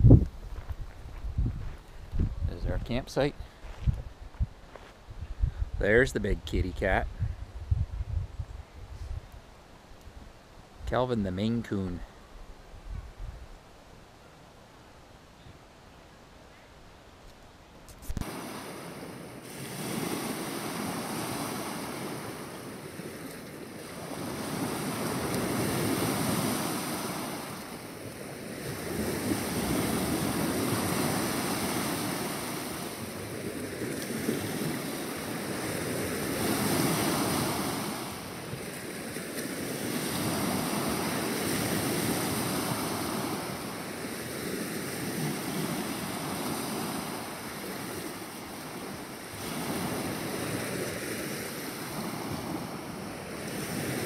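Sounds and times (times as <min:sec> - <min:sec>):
small waves breaking on beach: 0:18.0 - 0:54.0.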